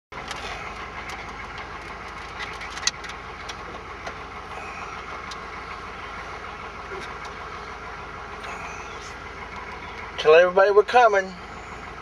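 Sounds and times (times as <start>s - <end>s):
vehicle engine and road noise: 0.1s - 12.0s
light clicks and rattles: 0.2s - 4.2s.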